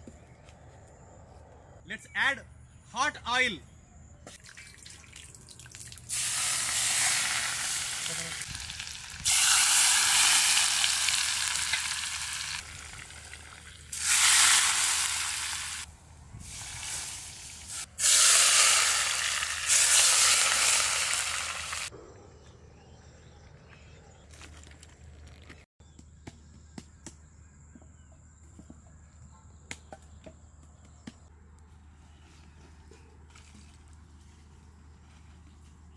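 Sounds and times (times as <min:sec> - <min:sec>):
hot oil sizzling on meat: 0:05.9 - 0:21.9.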